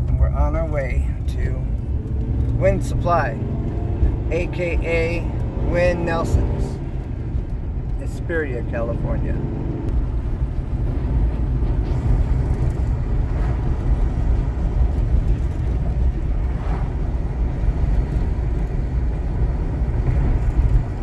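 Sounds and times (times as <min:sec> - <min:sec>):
vehicle engine and tyre noise: 0:00.0 - 0:21.0.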